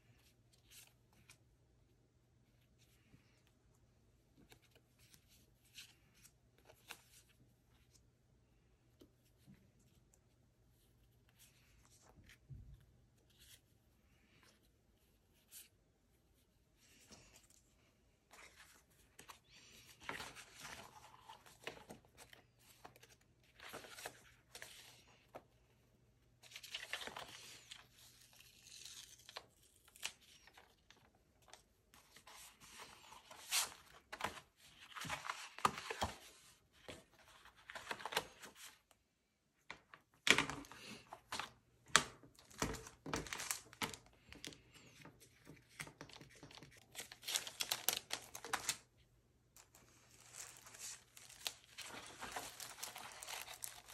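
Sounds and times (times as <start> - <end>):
paper rustling: 18.3 - 25.4, 26.4 - 38.8, 40.3 - 48.9, 49.6 - 53.9.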